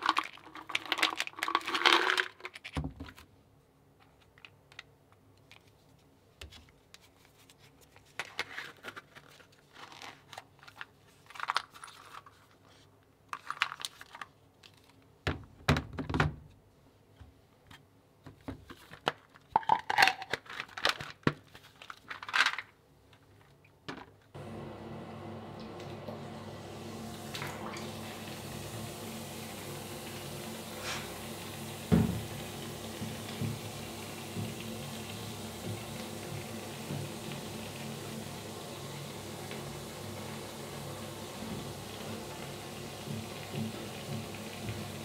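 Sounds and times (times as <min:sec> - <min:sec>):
tablets rattling into plastic holder: 0:00.0 - 0:02.8
plastic clicks and rustles: 0:04.0 - 0:15.2, 0:17.7 - 0:24.3.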